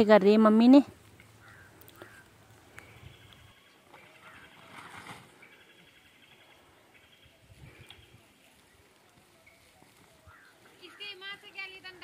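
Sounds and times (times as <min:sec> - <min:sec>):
distant birds chirping: 0:00.4 - 0:12.0
soft rustle: 0:01.0 - 0:05.6, 0:07.4 - 0:11.6.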